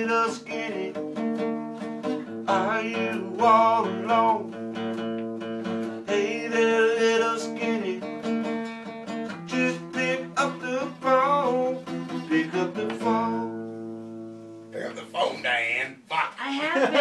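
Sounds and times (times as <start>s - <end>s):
acoustic guitar strumming: 0.0s - 16.3s.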